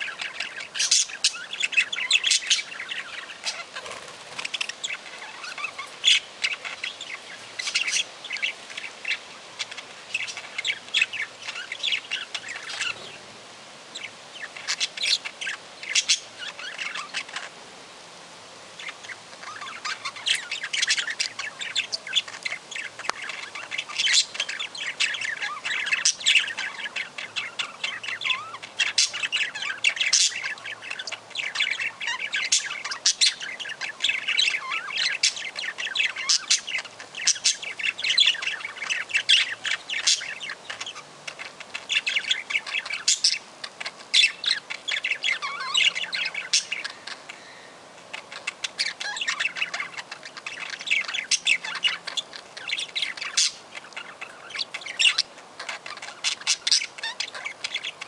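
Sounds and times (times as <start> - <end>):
budgerigars chirping and squawking: 0.0 - 17.6, 18.8 - 58.0.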